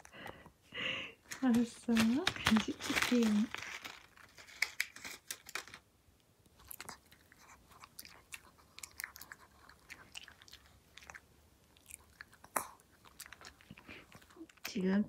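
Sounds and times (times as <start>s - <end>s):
dog chewing treat: 6.6s - 14.7s.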